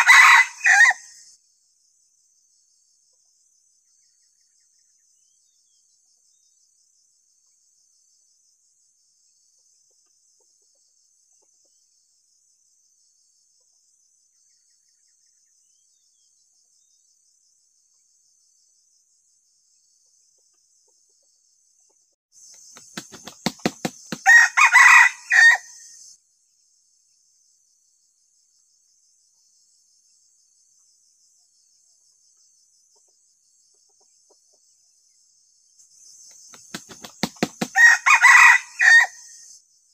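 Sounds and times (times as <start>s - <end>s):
rooster crowing: 0.0s - 1.2s, 23.6s - 25.9s, 37.2s - 39.4s
high insect trill: 0.0s - 2.9s, 22.4s - 39.9s
sharp claps: 22.6s - 24.3s, 36.3s - 37.8s.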